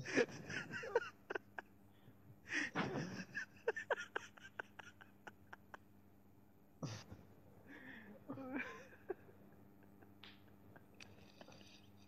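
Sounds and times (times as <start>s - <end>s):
woman giggling: 0.0s - 1.7s, 2.5s - 5.9s, 8.1s - 11.9s.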